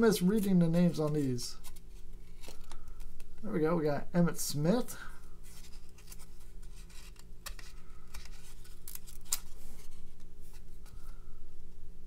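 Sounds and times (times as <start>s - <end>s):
steady low hum: 0.0s - 12.0s
cards clicking and rustling: 0.2s - 3.4s, 5.5s - 11.1s.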